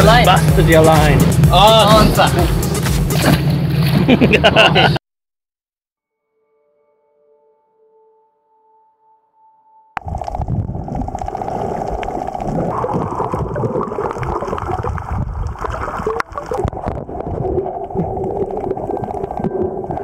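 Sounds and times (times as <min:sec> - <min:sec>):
low rumble: 0:10.0 - 0:20.0
muffled underwater rush and gurgle: 0:10.0 - 0:20.0.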